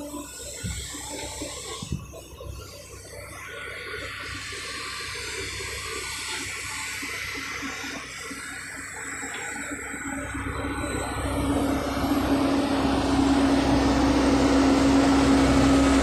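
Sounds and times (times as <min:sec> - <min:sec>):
excavator diesel engine rumble: 0:00.0 - 0:16.0.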